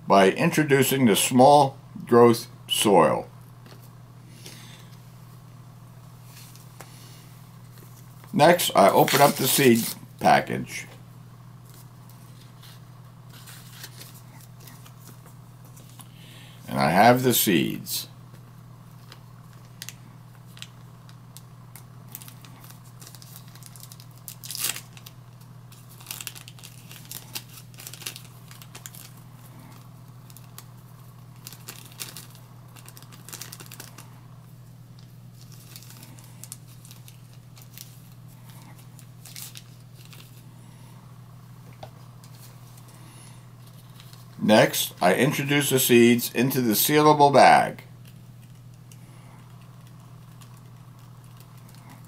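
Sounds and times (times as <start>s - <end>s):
steady low hum: 0.0s - 52.0s
seed packet crinkling: 7.7s - 10.0s, 18.9s - 34.1s, 35.0s - 40.5s, 43.6s - 44.5s, 48.0s - 52.0s.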